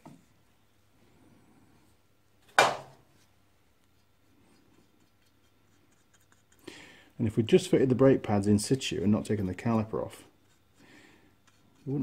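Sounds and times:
sharp knock: 2.6 - 3.0.

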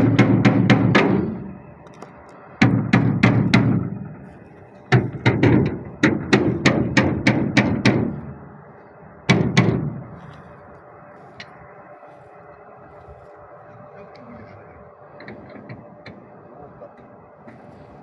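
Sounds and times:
hammer striking metal boat hull: 0.0 - 1.5, 2.6 - 4.0, 4.9 - 8.3, 9.3 - 10.0.

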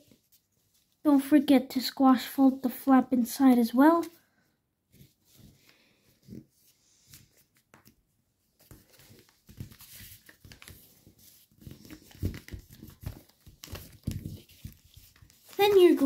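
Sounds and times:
paper rustling and crinkling: 4.9 - 16.0.

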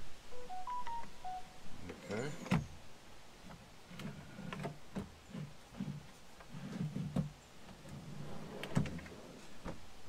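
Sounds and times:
drawer slides clicking and knocking: 3.9 - 9.8.

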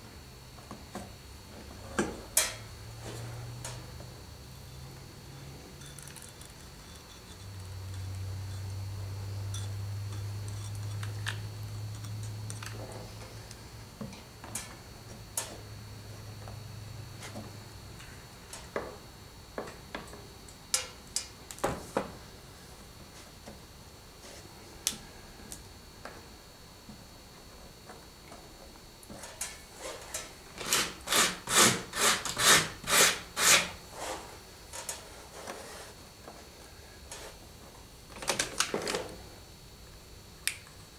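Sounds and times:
steady low hum: 0.0 - 40.9
hand tool rasping strokes: 29.8 - 34.3.

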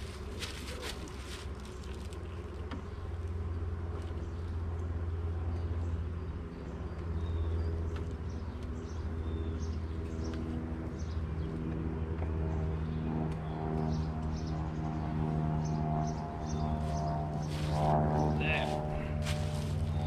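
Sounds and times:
birds chirping: 0.0 - 20.0
honeybees buzzing: 15.6 - 20.0.

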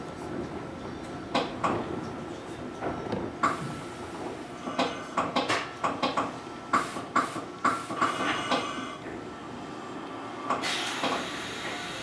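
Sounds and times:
train running rumble: 0.0 - 12.0
clanks and knocks from wheels: 0.4 - 2.1, 2.7 - 9.2, 10.4 - 11.4.

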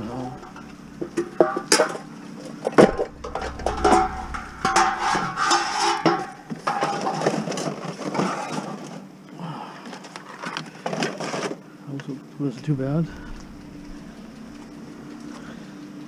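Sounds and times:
metal knocks clanks and scrapes: 2.7 - 8.6.

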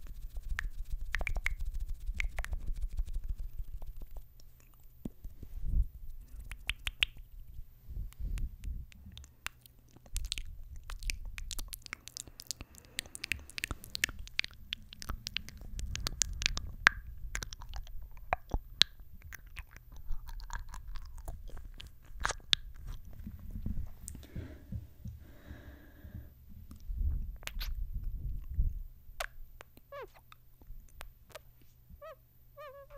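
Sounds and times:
kisses and lip smacks: 0.0 - 5.2, 6.1 - 23.1, 27.4 - 27.8, 29.2 - 31.7
low breathy rumble: 5.1 - 6.5, 7.3 - 9.4, 10.0 - 29.2.

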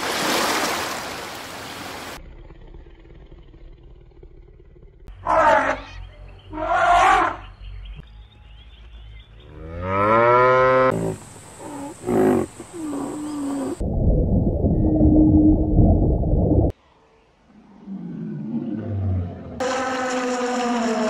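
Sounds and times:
lion roaring grunts: 2.2 - 5.1
cow mooing: 9.6 - 13.8
low underwater rushing: 13.6 - 16.7.

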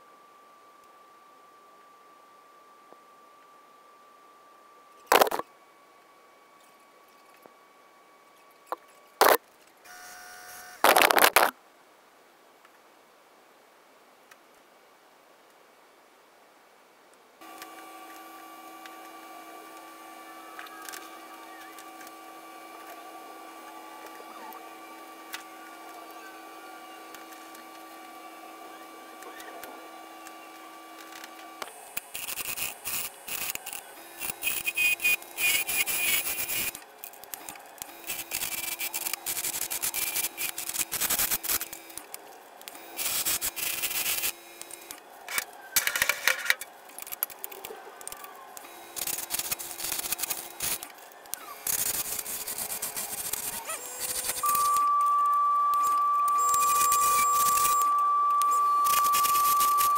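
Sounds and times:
faint shop hum: 0.0 - 11.6, 17.4 - 59.9
lathe motor whine: 51.5 - 59.9.

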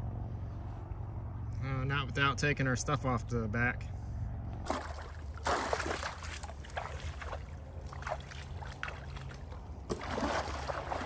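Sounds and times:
water sloshing against hull: 4.6 - 11.0.

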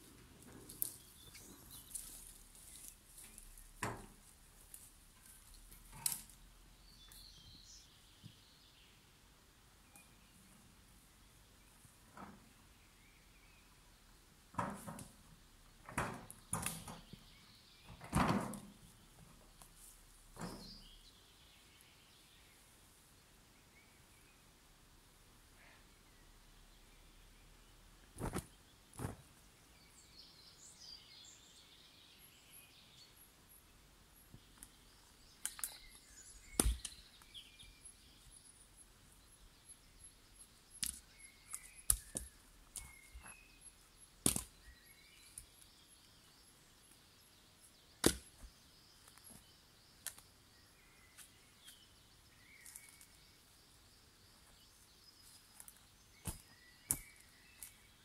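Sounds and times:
wooden logs knocking together: 36.6 - 37.0, 48.0 - 48.5.

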